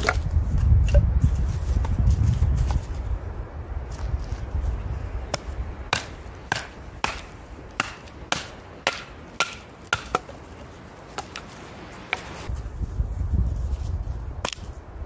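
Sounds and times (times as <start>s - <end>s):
hatchet chopping firewood: 0.0s - 1.1s, 5.3s - 11.5s, 12.1s - 12.4s, 14.4s - 14.7s.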